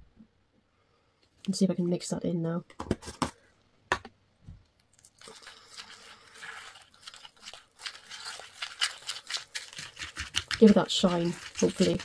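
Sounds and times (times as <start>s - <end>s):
palette knife scraping paste: 5.3s - 12.0s.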